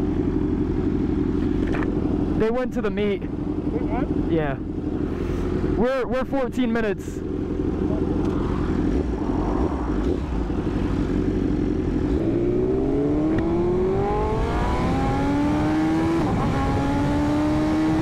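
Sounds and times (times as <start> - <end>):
motorcycle engine accelerating: 0.0 - 18.0
riding wind rush: 7.7 - 18.0.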